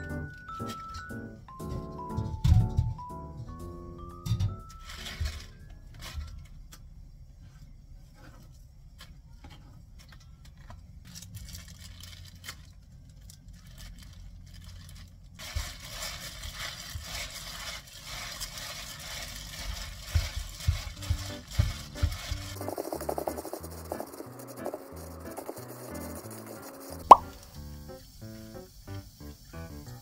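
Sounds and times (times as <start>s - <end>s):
leaves rustling: 13.5s - 27.2s
gloved hands scrunching leaves: 15.4s - 26.6s.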